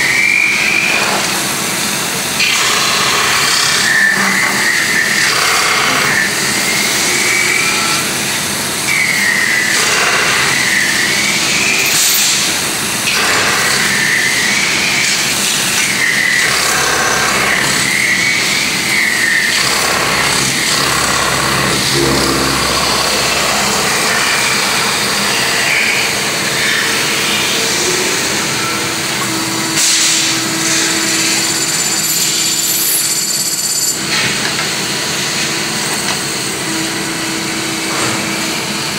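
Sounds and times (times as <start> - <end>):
lathe machine noise: 0.0 - 38.9
high squeal: 17.4 - 28.8.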